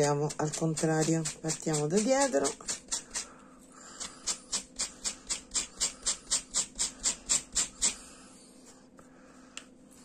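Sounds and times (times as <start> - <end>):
brush scratching through yarn: 0.0 - 3.3.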